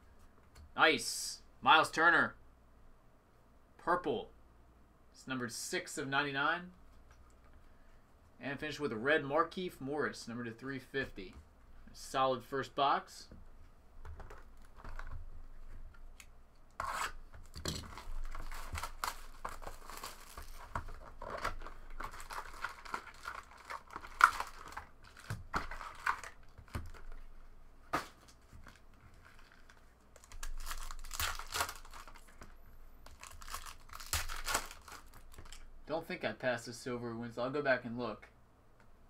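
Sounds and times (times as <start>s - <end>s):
foil packs crinkling: 17.4s - 27.2s, 28.1s - 32.5s, 33.1s - 35.6s.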